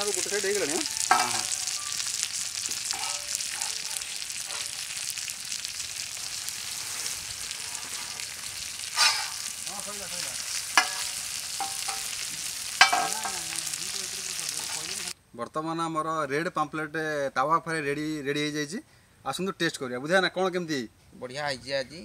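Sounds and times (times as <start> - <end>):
oil sizzling under frying fish: 0.0 - 15.2
metal spatula scraping a pan: 0.8 - 2.1, 2.8 - 5.0, 6.7 - 9.5, 10.6 - 12.2.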